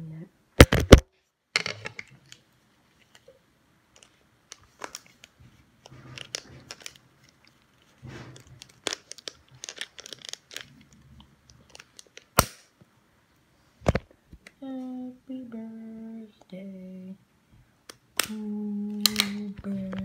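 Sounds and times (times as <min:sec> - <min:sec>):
crinkling handling noise: 0:01.6 - 0:12.7.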